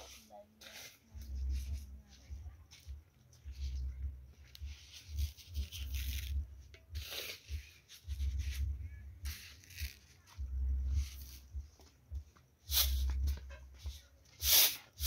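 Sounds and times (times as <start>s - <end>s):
deep rumble: 10.4s - 11.7s.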